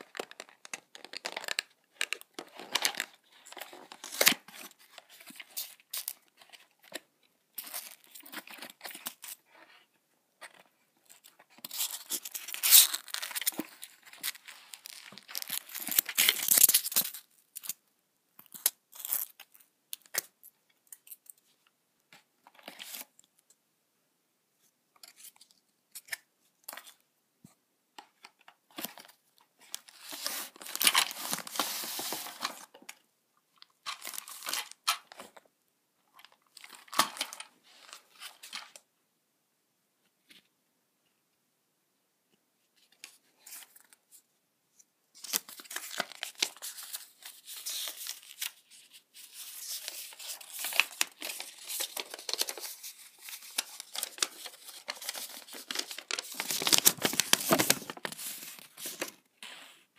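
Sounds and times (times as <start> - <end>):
packaging rustling: 0.0 - 7.0, 11.6 - 17.2, 29.7 - 32.8, 49.2 - 59.2.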